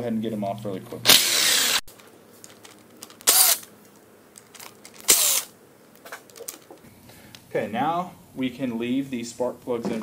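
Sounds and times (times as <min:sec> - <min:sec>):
cordless drill whining: 0:01.1 - 0:01.9, 0:03.2 - 0:03.6, 0:05.1 - 0:05.5.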